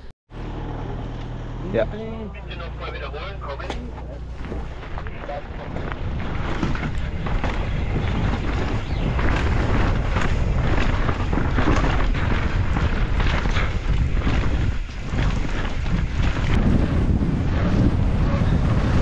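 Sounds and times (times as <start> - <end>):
tyres rumbling over gravel: 2.4 - 19.0
bike rattling and knocking: 3.7 - 19.0
wind buffeting microphone: 3.9 - 19.0.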